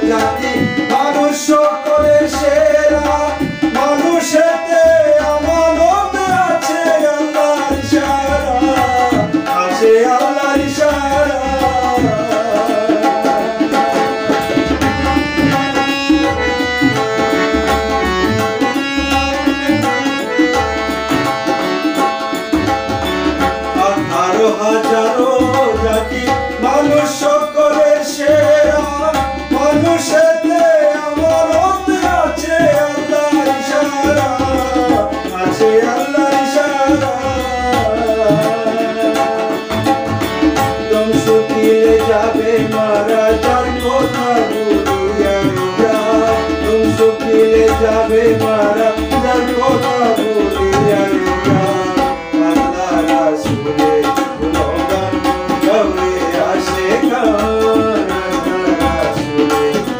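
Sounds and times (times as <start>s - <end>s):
harmonium: 0.0s - 59.9s
man singing: 0.0s - 59.9s
tabla: 0.0s - 59.9s.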